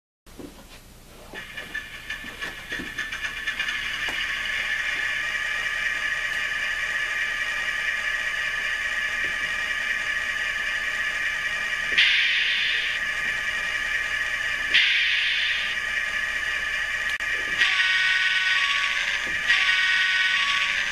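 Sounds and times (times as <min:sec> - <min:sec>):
model diesel engine idle through speaker: 0:01.4 - 0:17.5
loud sound: 0:04.2 - 0:20.9.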